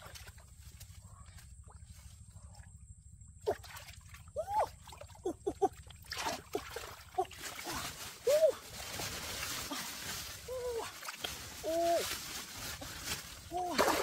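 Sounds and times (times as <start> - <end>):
hand splashing in muddy water: 13.5 - 14.0.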